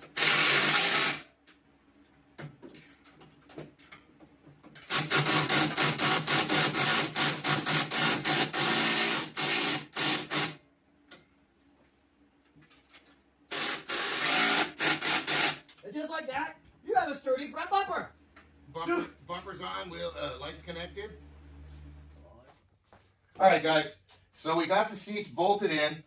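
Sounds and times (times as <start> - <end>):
cordless drill driving bolts: 0.0 - 1.2, 4.8 - 10.6, 13.5 - 15.7.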